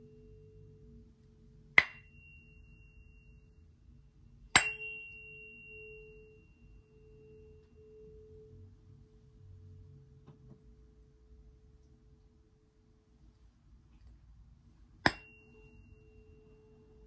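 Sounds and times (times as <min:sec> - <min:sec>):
tuning fork ringing: 0:00.0 - 0:09.4, 0:15.0 - 0:17.0
striker tapping tuning fork: 0:01.7 - 0:03.6, 0:04.4 - 0:08.6, 0:15.0 - 0:17.0.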